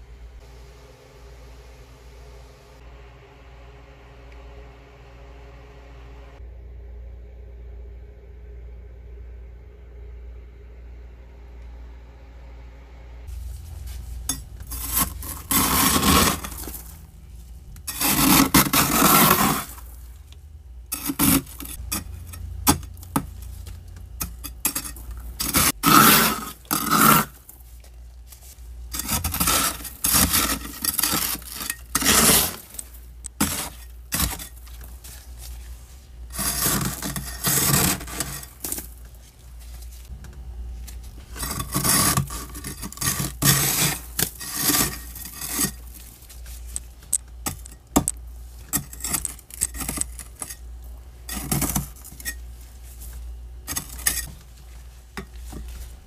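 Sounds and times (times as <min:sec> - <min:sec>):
low steady hum: 0:00.0 - 0:56.0
metal tool scraping frost: 0:13.3 - 0:20.3, 0:20.9 - 0:40.1, 0:41.1 - 0:54.6.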